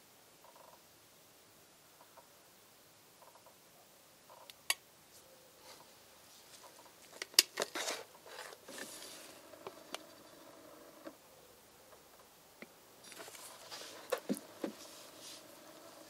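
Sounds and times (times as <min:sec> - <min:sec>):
kettle scraping: 0:07.6 - 0:09.5.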